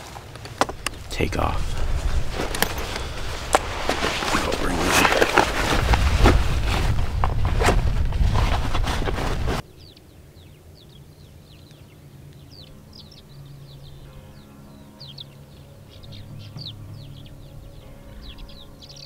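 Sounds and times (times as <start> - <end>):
backpack straps and buckles rustling: 0.0 - 9.6
small birds chirping: 9.6 - 19.0.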